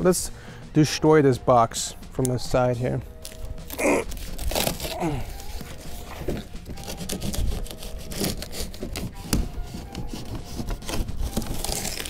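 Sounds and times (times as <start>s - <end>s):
blade cutting cardboard: 4.1s - 12.0s.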